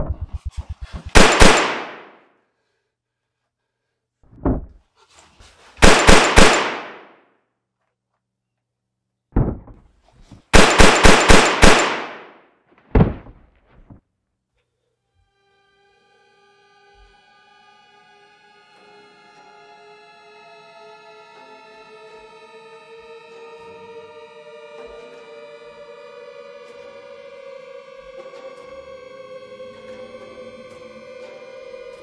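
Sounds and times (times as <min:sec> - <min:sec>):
handgun shots: 0:01.2 - 0:02.2, 0:05.8 - 0:07.2, 0:10.6 - 0:12.4
dull knocks: 0:04.3 - 0:04.8, 0:09.4 - 0:09.9, 0:12.9 - 0:14.0.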